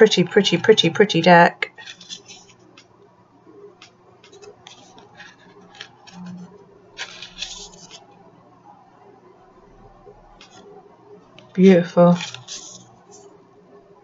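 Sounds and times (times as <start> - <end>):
cards rustling: 1.8 - 2.6, 7.0 - 8.0, 12.0 - 13.2.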